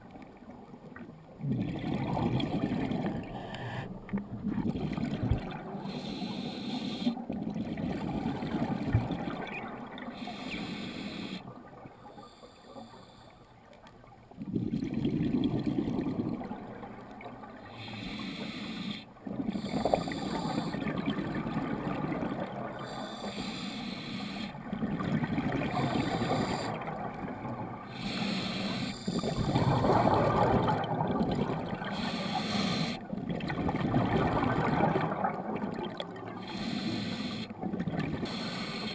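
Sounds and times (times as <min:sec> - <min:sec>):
exhaled bubbles underwater: 0:00.0 - 0:12.1, 0:14.1 - 0:18.2, 0:19.2 - 0:23.7, 0:24.3 - 0:38.9
regulator inhalations: 0:05.8 - 0:07.2, 0:10.2 - 0:11.5, 0:17.7 - 0:20.9, 0:22.8 - 0:24.6, 0:27.9 - 0:30.1, 0:31.8 - 0:33.1, 0:36.4 - 0:37.6, 0:38.2 - 0:38.9.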